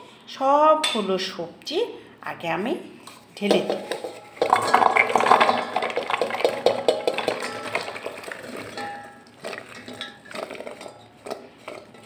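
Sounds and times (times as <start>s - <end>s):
vegetable pieces clattering into pot: 3.5s - 12.0s.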